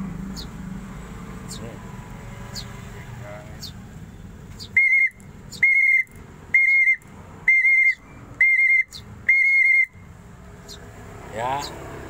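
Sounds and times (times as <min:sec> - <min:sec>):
whistle trilling blasts: 0:04.6 - 0:10.1.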